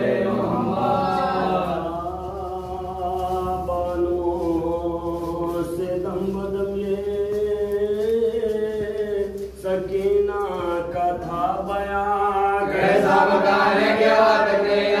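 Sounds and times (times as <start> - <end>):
group chanting in unison: 0.0 - 2.2, 12.6 - 15.0.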